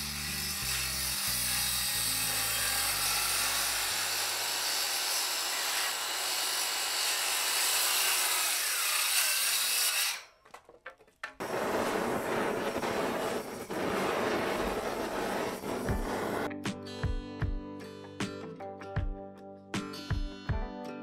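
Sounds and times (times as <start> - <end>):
circular saw cutting wood: 0.0 - 10.4, 11.4 - 16.5.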